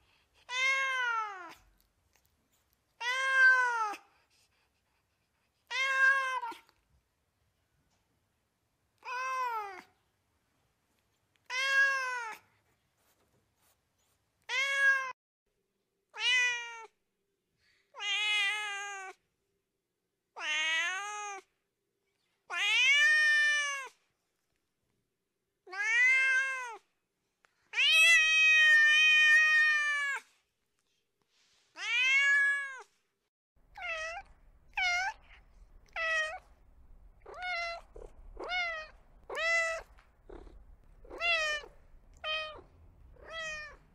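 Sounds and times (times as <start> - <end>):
cat meowing: 0.4 - 1.6, 3.0 - 4.0, 5.6 - 6.8, 11.4 - 12.4, 14.4 - 15.2, 25.7 - 26.9, 31.8 - 32.9, 33.7 - 36.5, 37.2 - 43.9
faint low hum: 33.6 - 43.9.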